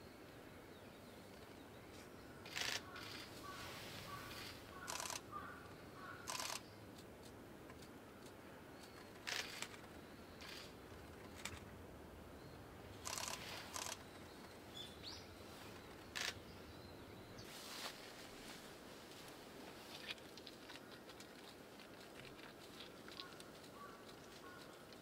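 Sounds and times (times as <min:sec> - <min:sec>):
camera shutter bursts: 0:02.5 - 0:03.3, 0:04.3 - 0:05.2, 0:06.2 - 0:06.6, 0:13.0 - 0:14.0.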